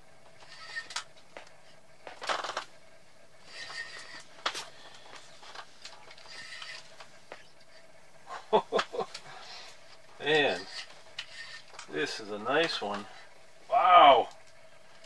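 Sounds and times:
fishing reel being cranked: 6.3s - 6.8s.

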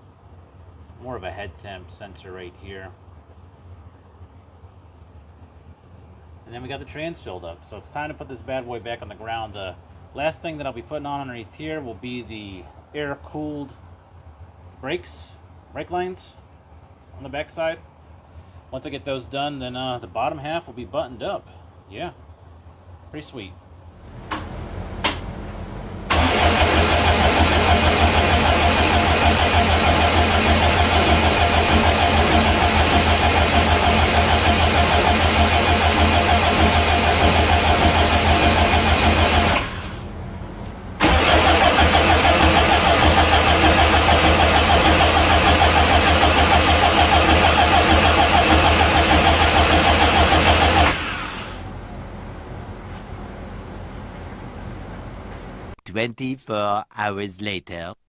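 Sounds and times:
engine cranking on starter: 24.1s - 40.1s, 41.0s - 51.8s
clicks: 24.2s - 25.3s.

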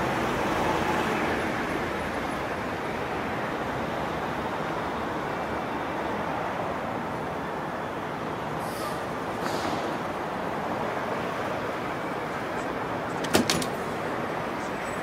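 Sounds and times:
door lock clicks: 13.1s - 13.8s.

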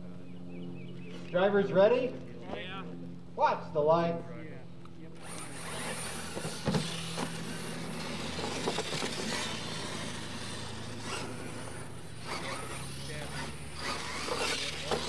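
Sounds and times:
electric motors whining: 4.6s - 15.0s
tyres scrabbling on dirt: 5.2s - 15.0s.

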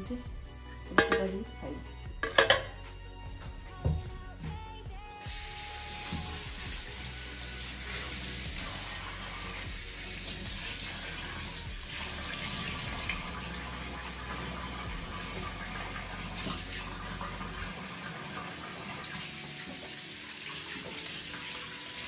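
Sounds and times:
steel utensils clinking: 0.9s - 2.8s, 7.8s - 8.2s, 19.1s - 19.6s
tap running into steel sink: 1.0s - 2.8s, 3.8s - 4.1s.

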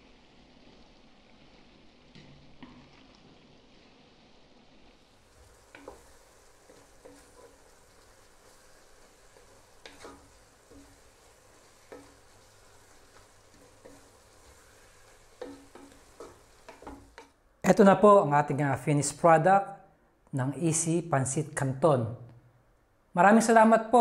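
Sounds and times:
faint sizzle: 0.0s - 22.5s
spatula knocking and scraping pot: 5.6s - 7.7s, 8.4s - 17.4s.

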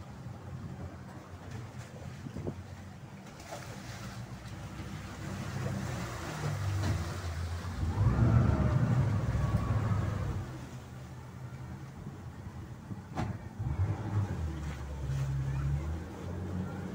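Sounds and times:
speedboat engine rumbling: 0.0s - 16.9s.

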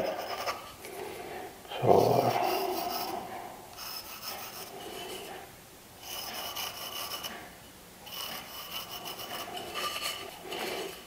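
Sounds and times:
pencil scratching on wood: 3.8s - 5.4s, 6.0s - 7.5s, 8.1s - 11.0s.

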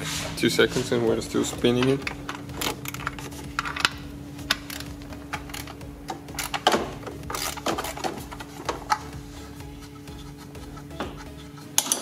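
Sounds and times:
steady low hum: 0.0s - 12.0s
hand ratchet clicking: 1.9s - 9.1s.

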